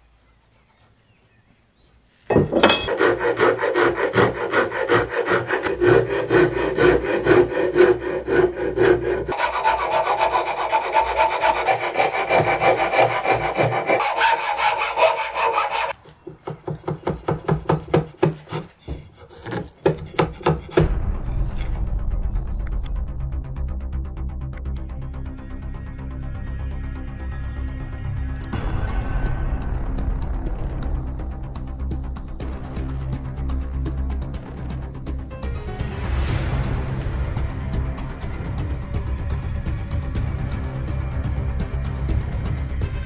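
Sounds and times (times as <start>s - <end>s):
file scraping wood: 2.5s - 21.7s.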